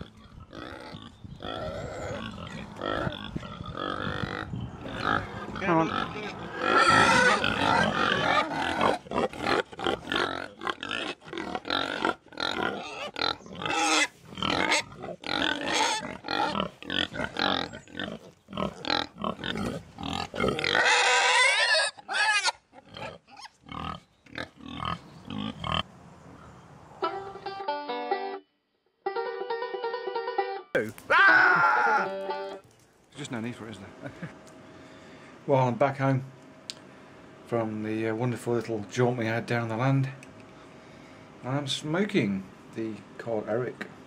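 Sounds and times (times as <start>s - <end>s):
pig squealing: 0.0s - 25.8s
pigs grunting: 0.0s - 25.9s.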